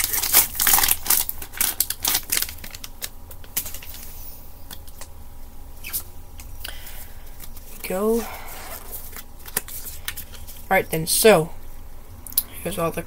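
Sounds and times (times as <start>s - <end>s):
foil wrapper crinkling and tearing: 0.0s - 5.1s, 8.7s - 10.7s.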